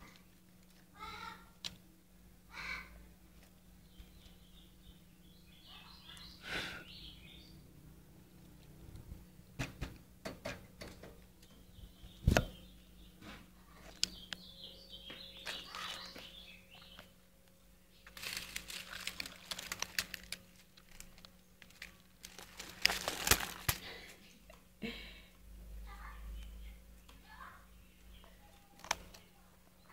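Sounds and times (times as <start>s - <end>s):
faint high bird peeps: 3.9s - 7.6s, 11.5s - 17.1s
leaves rustling and crackling: 18.0s - 24.0s.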